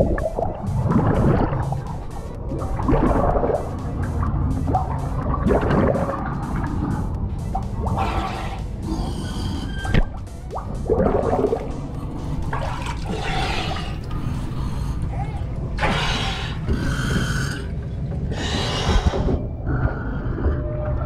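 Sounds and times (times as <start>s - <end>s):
air bubbles underwater: 0.0s - 7.0s, 10.1s - 14.7s.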